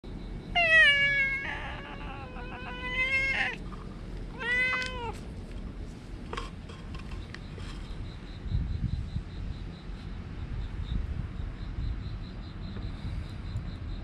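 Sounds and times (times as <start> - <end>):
cat meowing: 0.6 - 3.6, 4.3 - 5.2.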